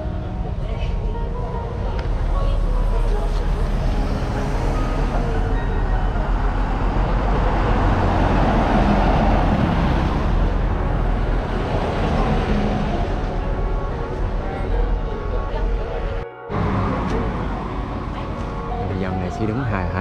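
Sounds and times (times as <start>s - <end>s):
steady low traffic rumble: 0.0s - 20.0s
vehicle passing by: 2.9s - 13.6s.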